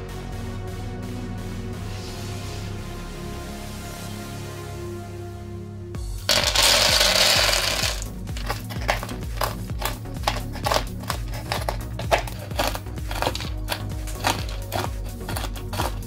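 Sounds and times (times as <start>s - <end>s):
soft background music: 0.0s - 16.0s
peanuts poured onto wooden board: 6.3s - 16.0s
knife chopping on board: 8.3s - 16.0s.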